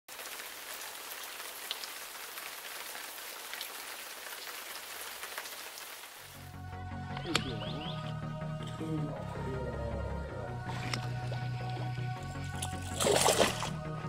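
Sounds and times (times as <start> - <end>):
rain falling on lake: 0.1 - 6.6
music: 6.3 - 14.0.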